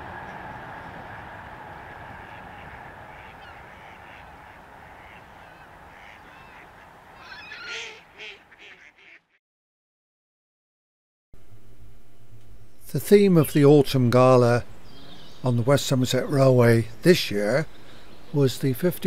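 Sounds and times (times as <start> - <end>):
train rumbling past: 0.0 - 3.2
ducks quacking: 0.0 - 9.4.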